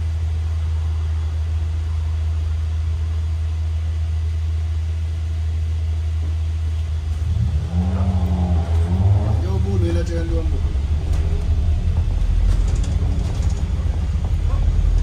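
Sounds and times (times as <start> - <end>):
bus engine droning: 0.0 - 15.0
higher-pitched whine: 7.0 - 15.0.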